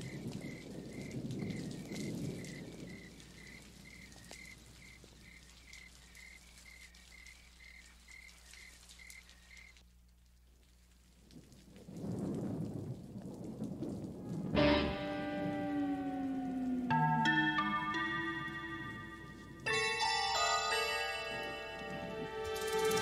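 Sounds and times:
cricket chirping: 0.0 - 9.8.

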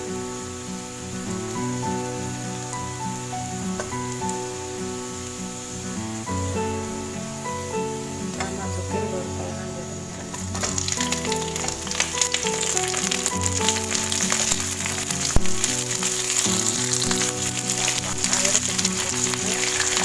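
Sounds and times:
background music: 0.0 - 20.0
vegetables sizzling in oil: 0.0 - 20.0
water poured into pan: 10.3 - 20.0.

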